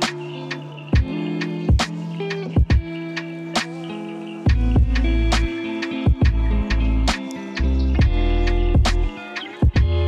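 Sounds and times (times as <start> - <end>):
background music with a beat: 0.0 - 10.0
deep bass: 4.5 - 5.5, 6.2 - 9.1.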